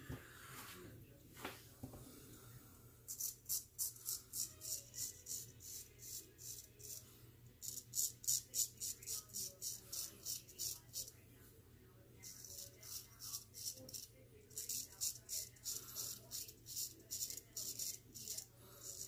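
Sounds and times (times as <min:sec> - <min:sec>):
razor scraping stubble: 0:03.1 - 0:11.2, 0:12.2 - 0:19.0.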